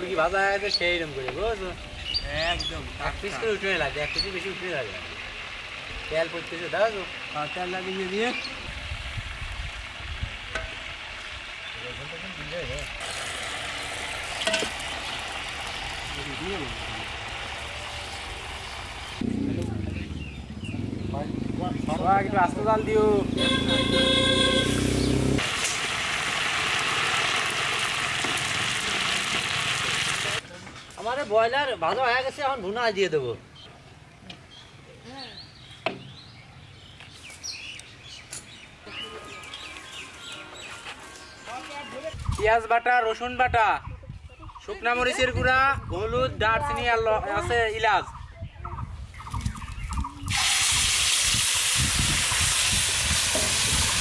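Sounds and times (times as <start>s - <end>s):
oil sizzling while deep-frying: 2.8s - 19.2s, 24.7s - 30.4s, 50.3s - 54.0s.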